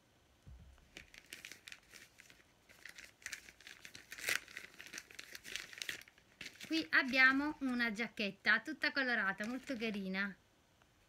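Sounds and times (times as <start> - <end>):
plastic packaging crinkling: 0.8 - 8.0, 9.0 - 10.1.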